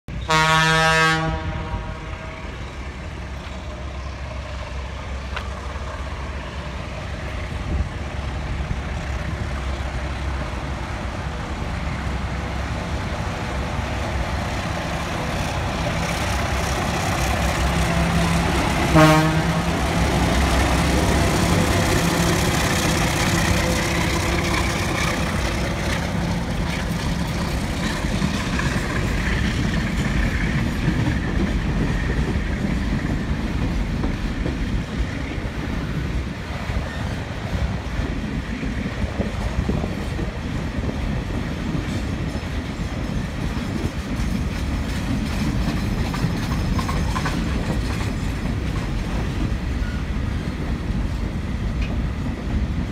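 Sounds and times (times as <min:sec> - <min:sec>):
train wheels rumbling over rails: 0:00.1 - 0:52.9
locomotive horn: 0:00.2 - 0:02.6, 0:17.9 - 0:20.2.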